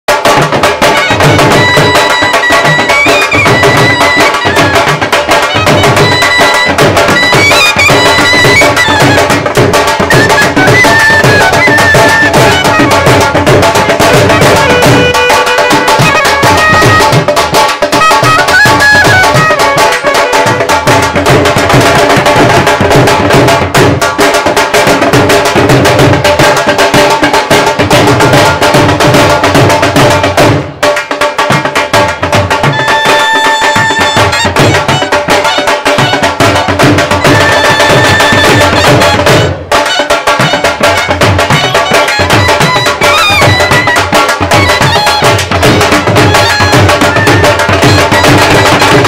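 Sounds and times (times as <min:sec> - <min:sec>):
drums beating steady rhythm: 0:00.1 - 0:49.0
clarinet folk melody: 0:00.8 - 0:21.2, 0:32.6 - 0:49.0.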